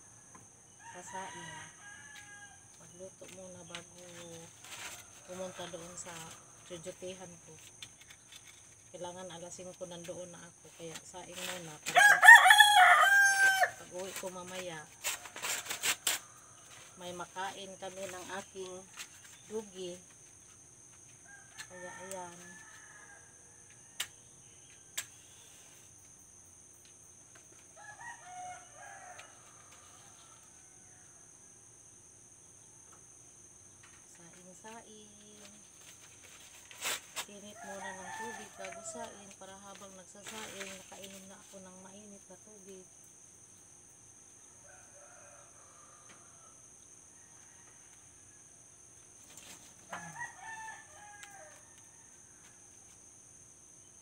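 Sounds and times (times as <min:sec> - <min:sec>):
rooster crowing: 0:00.0 - 0:02.8, 0:11.9 - 0:13.8, 0:27.8 - 0:31.3, 0:37.6 - 0:39.2, 0:44.4 - 0:48.6, 0:49.9 - 0:52.6
crickets droning: 0:00.0 - 0:54.0.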